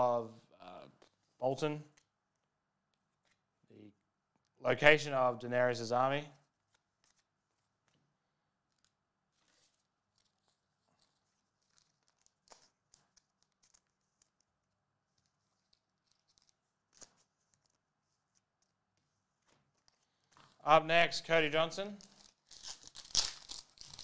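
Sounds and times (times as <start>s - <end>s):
cards and packaging rustling: 6.5s - 8.1s, 8.7s - 20.6s, 21.9s - 24.0s.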